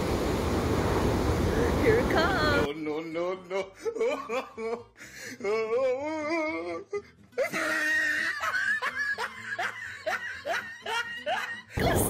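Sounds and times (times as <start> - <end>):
vocal music: 2.6 - 8.5.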